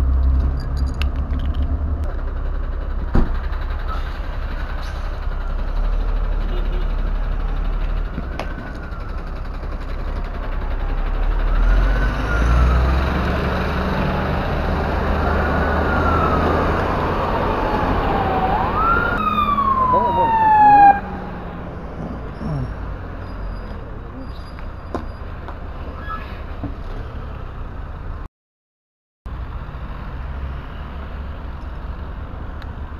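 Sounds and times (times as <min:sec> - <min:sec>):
siren wailing: 0:14.7 - 0:22.0.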